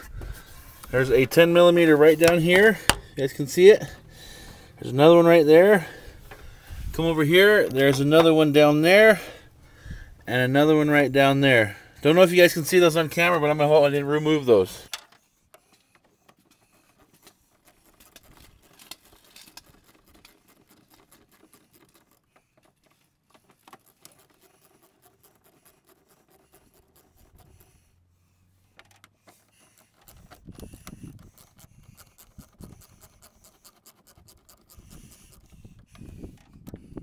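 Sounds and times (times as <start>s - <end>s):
ratchet clicks and scrapes: 0.0s - 37.0s
handling thumps: 0.1s - 4.7s.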